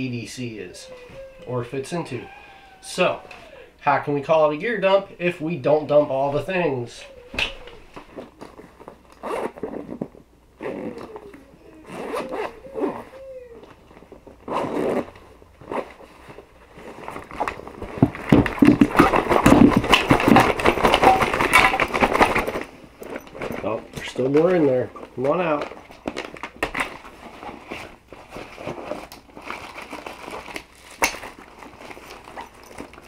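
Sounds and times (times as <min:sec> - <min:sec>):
zippers pulled open: 0:09.1 - 0:13.3, 0:14.4 - 0:16.0
gear clattering and rustling: 0:13.7 - 0:33.0.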